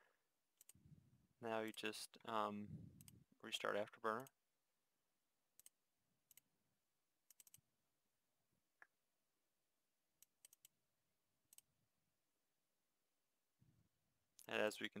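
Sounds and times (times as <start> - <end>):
computer mouse clicks: 0.6 - 0.8, 5.6 - 6.4, 7.3 - 7.6, 10.2 - 10.8.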